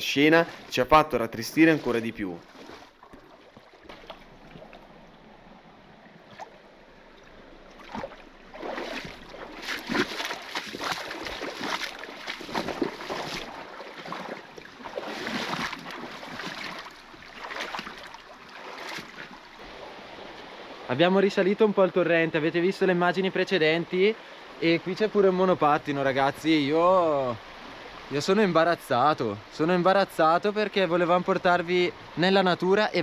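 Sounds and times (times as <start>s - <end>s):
splashing and rustling: 0.0s - 5.0s, 7.2s - 19.9s
stream running over rocks: 0.0s - 33.0s.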